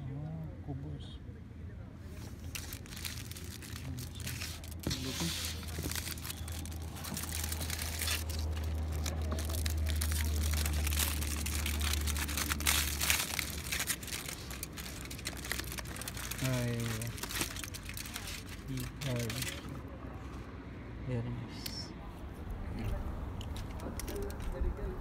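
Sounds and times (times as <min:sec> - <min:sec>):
aluminium foil crinkling: 0:02.2 - 0:19.8, 0:23.4 - 0:24.7.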